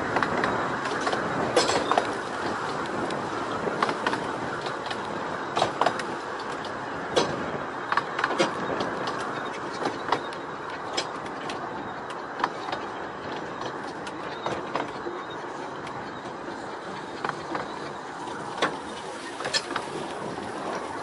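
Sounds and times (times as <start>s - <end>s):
clicks and knocks from wheels: 0.0s - 16.4s
train rolling along track: 0.0s - 21.0s.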